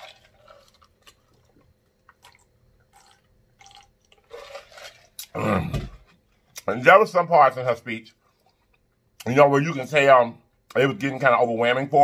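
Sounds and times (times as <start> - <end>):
man gulping and swallowing: 0.1 - 6.6.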